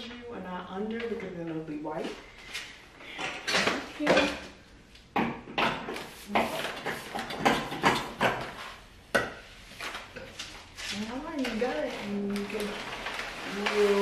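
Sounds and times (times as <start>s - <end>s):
paper rustling: 9.6s - 14.0s.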